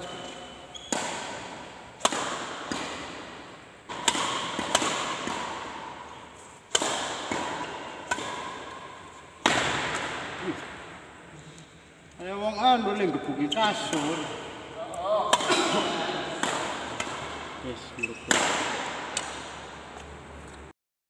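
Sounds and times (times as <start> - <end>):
badminton racket hitting shuttlecock: 0.0 - 10.7, 15.2 - 17.5, 18.1 - 20.1.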